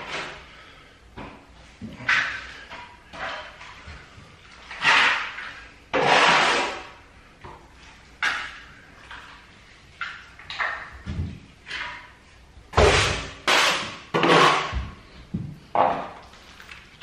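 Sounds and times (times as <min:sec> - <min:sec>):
trowel scraping plaster: 0:04.7 - 0:07.0, 0:12.8 - 0:14.8.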